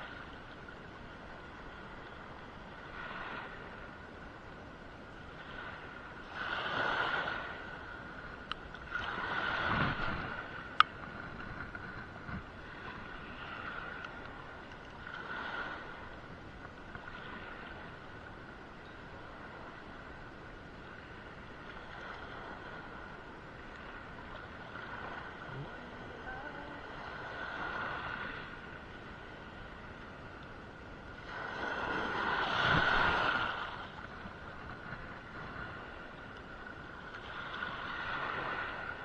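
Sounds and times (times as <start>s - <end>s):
water lapping around boat: 0.0s - 39.0s
wind gusting over microphone: 8.9s - 14.6s, 23.9s - 36.1s.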